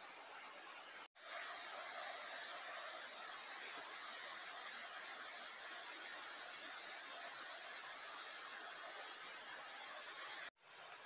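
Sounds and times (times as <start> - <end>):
insect chorus drone: 0.0 - 10.5
background hiss: 0.0 - 11.0.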